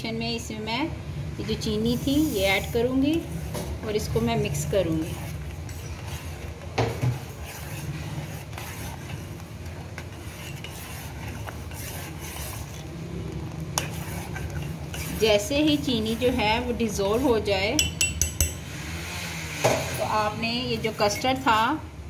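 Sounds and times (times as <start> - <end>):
spoon scraping and clinking in pot: 4.9 - 12.9, 13.5 - 18.8.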